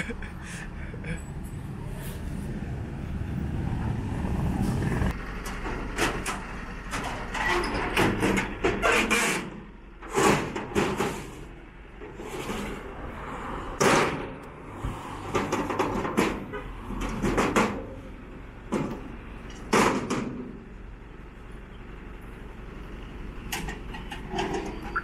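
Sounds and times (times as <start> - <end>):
metal ramps scraping and clanking: 5.4 - 13.0, 15.2 - 18.0, 23.5 - 25.0.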